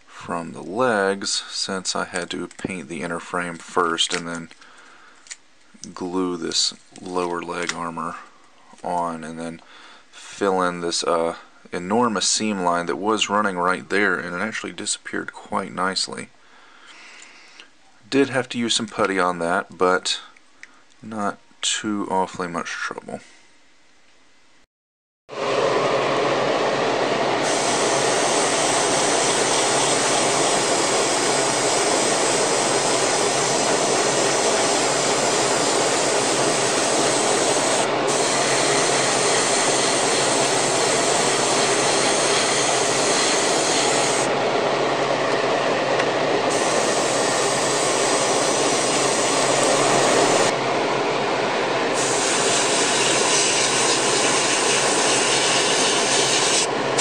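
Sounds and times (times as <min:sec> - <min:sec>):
exhaust fan rushing: 0:25.4 - 0:57.0
airbrush spraying paint: 0:27.4 - 0:44.3, 0:46.5 - 0:50.5, 0:52.0 - 0:56.7.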